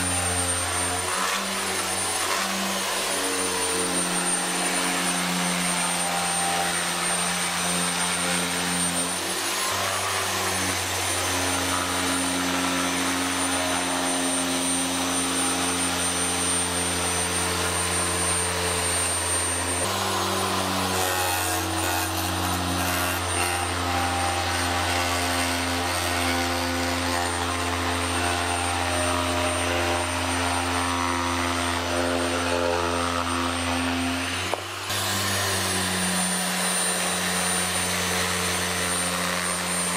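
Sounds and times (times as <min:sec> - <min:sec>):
carpet remover humming and buzzing: 0:00.0 - 0:39.9.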